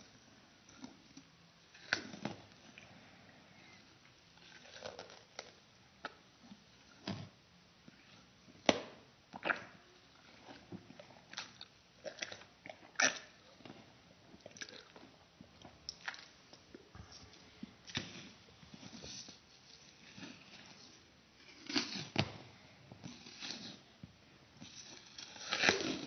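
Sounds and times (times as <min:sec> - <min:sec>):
child crunching candy: 0:04.4 - 0:05.6.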